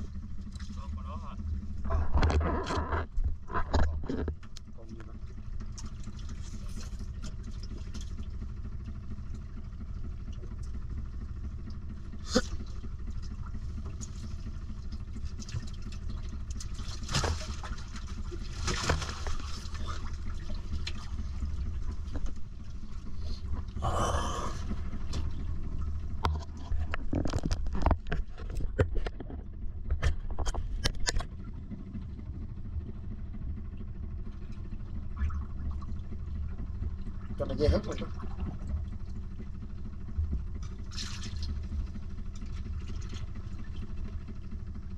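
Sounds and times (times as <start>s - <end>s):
boat motor humming: 0.0s - 44.9s
water splashing: 12.5s - 23.7s.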